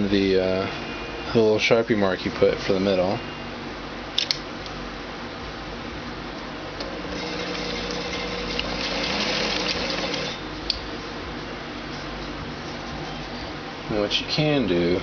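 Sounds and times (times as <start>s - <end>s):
sharp click: 4.2s - 4.8s
electric sewing machine stitching: 6.9s - 10.4s.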